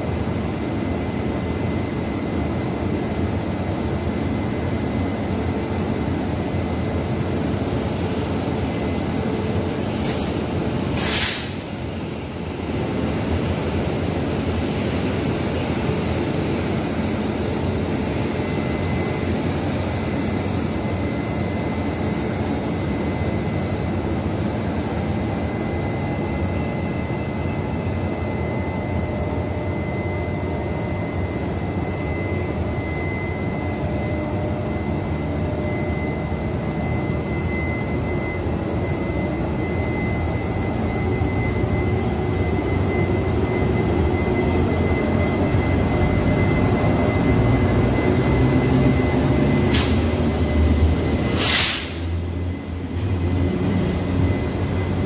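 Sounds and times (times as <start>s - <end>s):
electric locomotive whirring: 30.6s - 55.0s.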